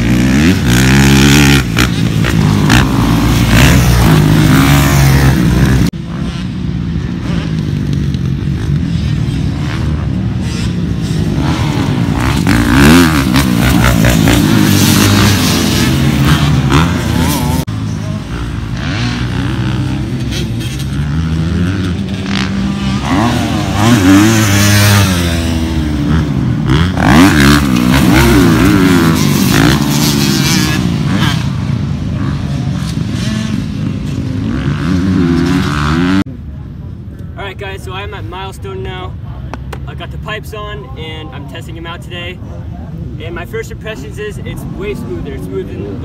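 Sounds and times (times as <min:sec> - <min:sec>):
motocross bike revving: 0:00.0 - 0:36.4.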